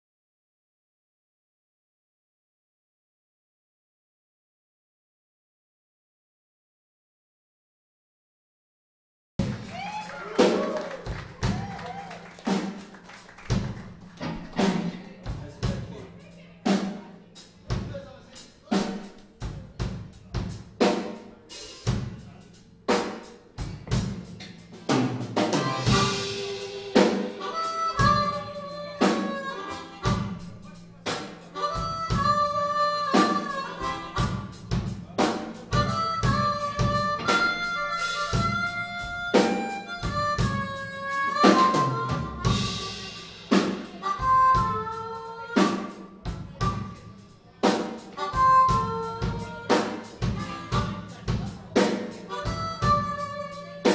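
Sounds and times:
blues band playing: 9.4 - 53.9
harmonica sliding notes: 25.4 - 53.9.

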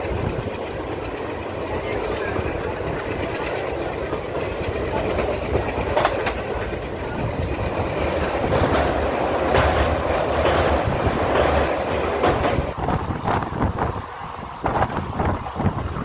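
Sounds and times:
clickety-clack of rail joints: 0.0 - 16.0
train wheels rumbling on track: 0.0 - 16.0.

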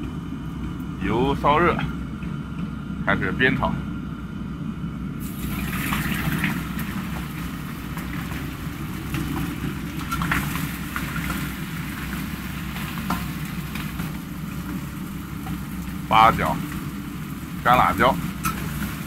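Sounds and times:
chicken sizzling in hot oil: 5.2 - 19.0.

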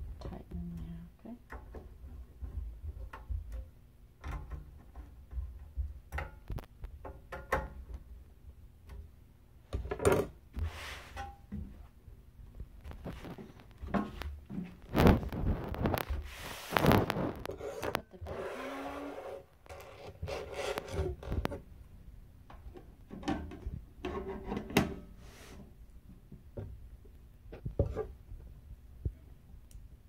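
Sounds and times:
rubbing and scraping of housing: 12.9 - 21.7.

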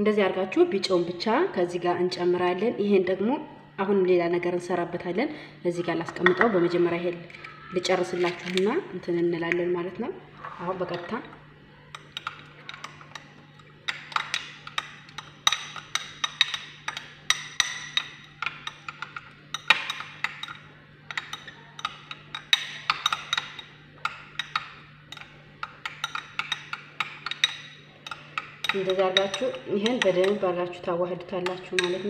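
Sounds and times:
utensil clinking against glass bowl: 11.9 - 30.6, 31.4 - 32.0.

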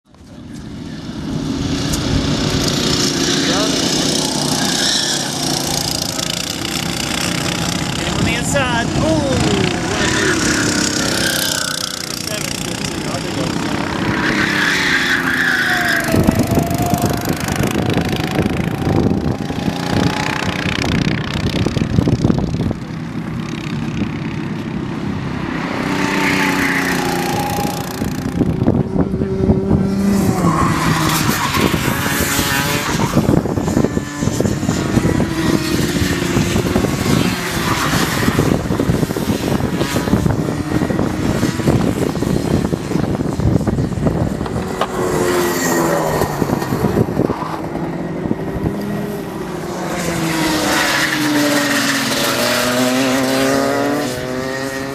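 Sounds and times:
racing kart engines: 0.0 - 54.9.

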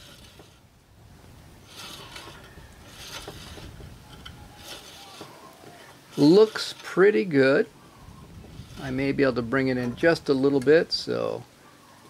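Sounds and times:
bandsaw blade rubbing whir: 0.0 - 0.7, 1.6 - 10.0.

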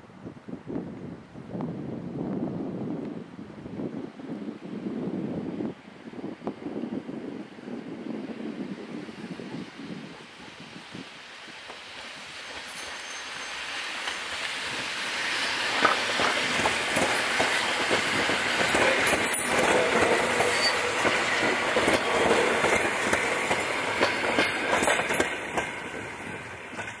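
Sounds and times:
train carriages rumbling: 11.6 - 27.0.

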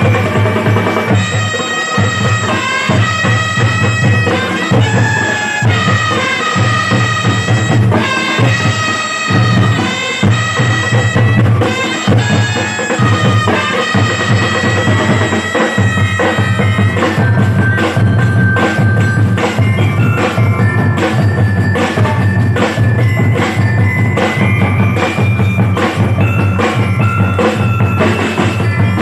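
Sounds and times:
marching drums beating: 0.0 - 29.0
horns playing held notes: 1.0 - 17.4.

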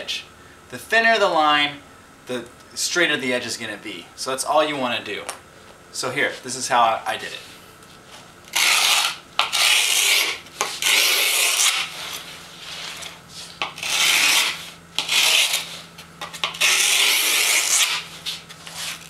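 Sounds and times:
screwdriver scraping grip tape: 8.5 - 12.2, 12.8 - 19.0.

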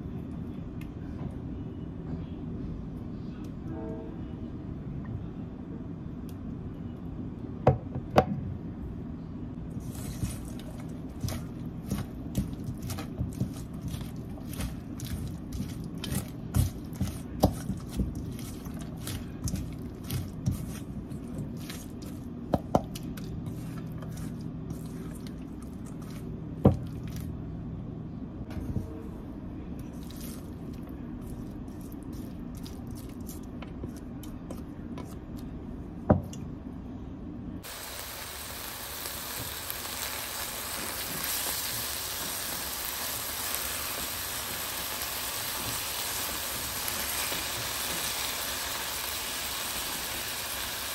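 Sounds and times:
steady low hum: 0.0 - 50.9
spatula mixing wet salad: 9.7 - 27.4, 29.8 - 35.5.

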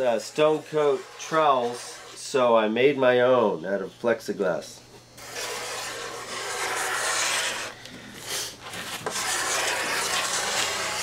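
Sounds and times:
trowel scraping epoxy on wood: 0.0 - 2.3, 5.2 - 11.0.

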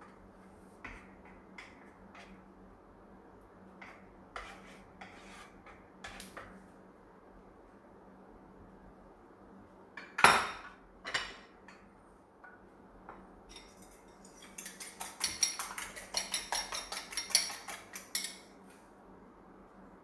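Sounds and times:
fork beating eggs in bowl: 13.5 - 18.6.

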